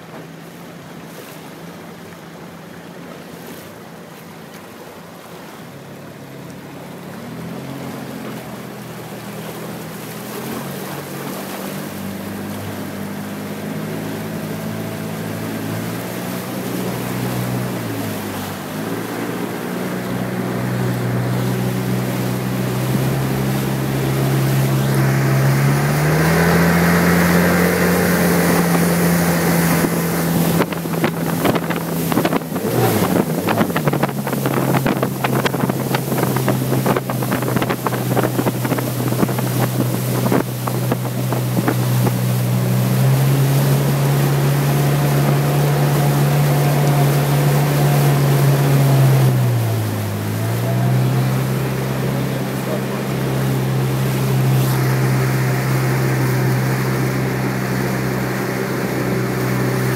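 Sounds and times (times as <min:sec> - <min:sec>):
motorboat engine running: 0:00.0 - 0:59.9
water rushing past: 0:00.0 - 0:59.9
wind buffeting microphone: 0:16.1 - 0:46.8.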